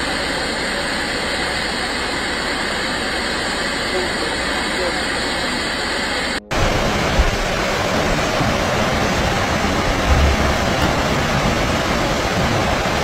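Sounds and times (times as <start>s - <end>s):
floodwater rushing: 0.0s - 13.0s
low thumps: 6.5s - 13.0s.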